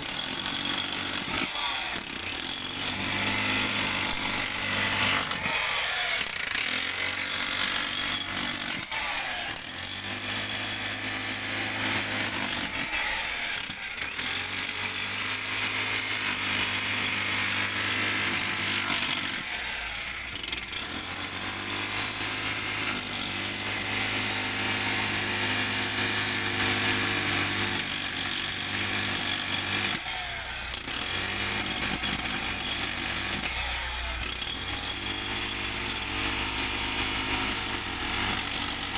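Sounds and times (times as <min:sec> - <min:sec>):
jackhammer rattling: 0:00.0 - 0:19.5, 0:20.3 - 0:30.1, 0:30.7 - 0:38.9.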